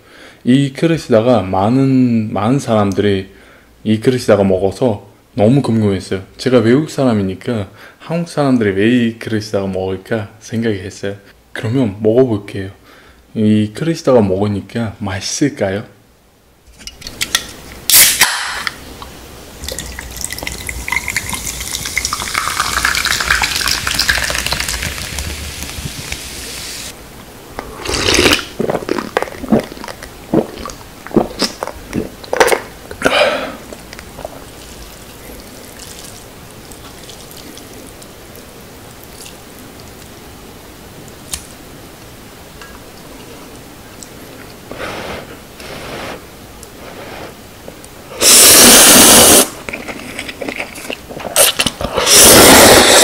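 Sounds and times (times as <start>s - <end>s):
person gulping: 19.6s - 26.2s, 27.6s - 38.0s, 48.2s - 53.0s
soda poured over ice: 19.6s - 26.9s.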